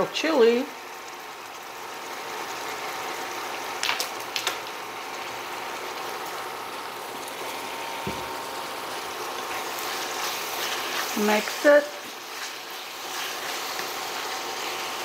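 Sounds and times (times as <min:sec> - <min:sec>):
food sizzling in a skillet: 0:00.0 - 0:15.0
soft knock: 0:08.0 - 0:08.3.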